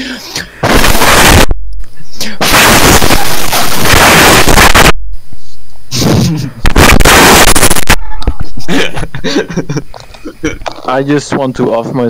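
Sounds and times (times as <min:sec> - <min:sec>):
crackly fragments: 0:00.6 - 0:01.5, 0:02.2 - 0:05.0, 0:06.6 - 0:08.7
harsh distorted microphone noise: 0:00.6 - 0:09.3.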